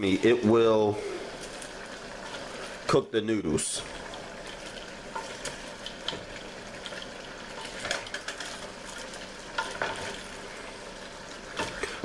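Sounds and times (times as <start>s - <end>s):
cooking pot hissing: 0.0s - 12.0s
wooden spoon stirring in pot: 0.0s - 12.0s.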